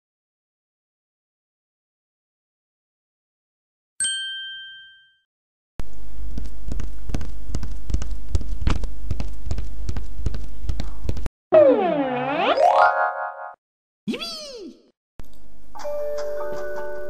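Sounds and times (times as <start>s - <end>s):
bell-like ding: 4.0s - 5.3s.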